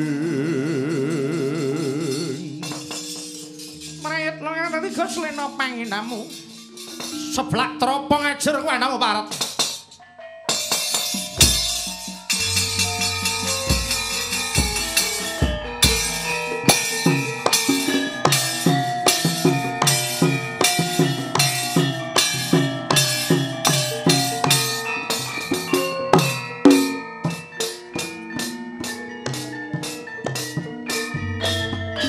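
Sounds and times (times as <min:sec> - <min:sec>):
metallophones ringing: 0:01.2 - 0:32.0
hand drum strokes: 0:05.0 - 0:07.4, 0:10.5 - 0:27.4
bronze gongs ringing: 0:10.1 - 0:32.0.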